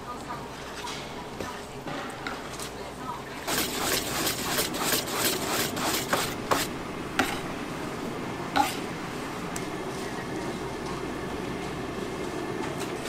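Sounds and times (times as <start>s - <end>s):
whisk beating in metal bowl: 3.4s - 6.7s.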